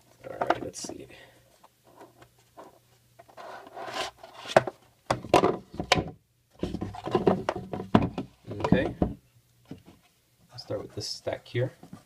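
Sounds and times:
cardboard lid scraping: 0:03.3 - 0:04.7.

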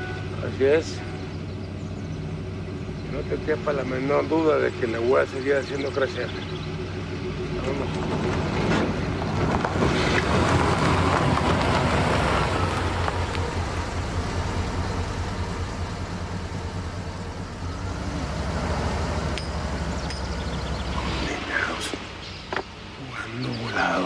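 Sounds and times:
pickup truck driving off: 0:00.0 - 0:23.0.

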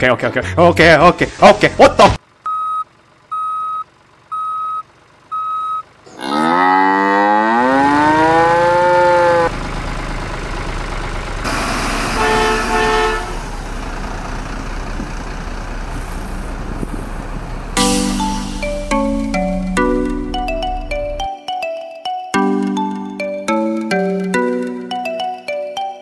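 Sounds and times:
engine rumble: 0:00.4 - 0:21.3
short beeps: 0:02.5 - 0:05.9
cow mooing: 0:06.1 - 0:09.5
double tone: 0:17.8 - 0:21.3.

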